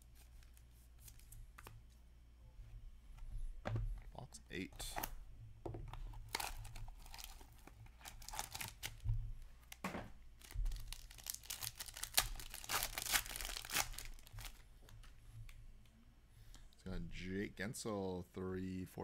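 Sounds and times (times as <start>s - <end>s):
wrapper crinkling and tearing: 6.2s - 9.0s, 10.4s - 14.6s.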